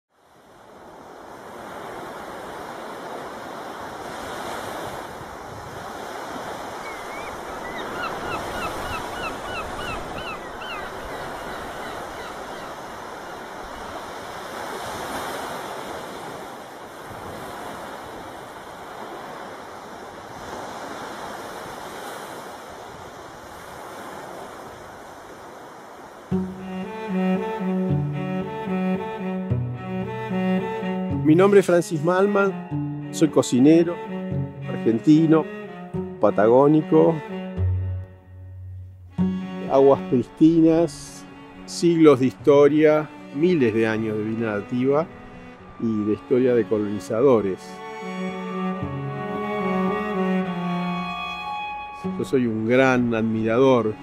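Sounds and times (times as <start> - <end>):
sea waves washing ashore: 0.1 - 54.0
bird short rising calls: 6.7 - 13.5
cello: 26.3 - 54.0.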